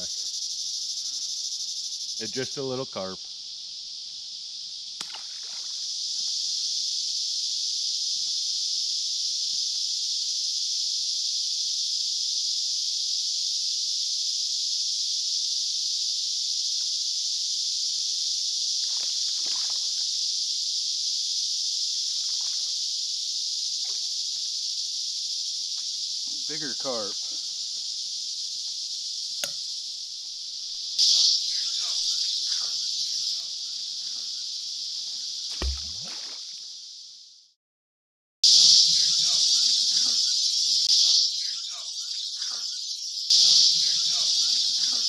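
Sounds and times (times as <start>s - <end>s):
high-pitched insect drone: 0.0s - 37.3s, 38.4s - 45.0s
fish splashing into river: 5.0s - 5.8s, 19.3s - 19.9s, 35.5s - 36.5s.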